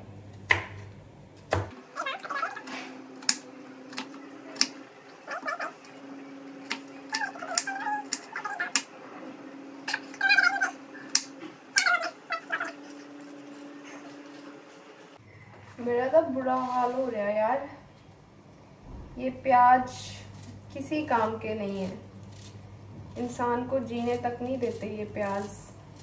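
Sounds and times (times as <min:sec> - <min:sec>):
knife chopping on wooden board: 0:00.5 - 0:00.8, 0:01.5 - 0:01.8.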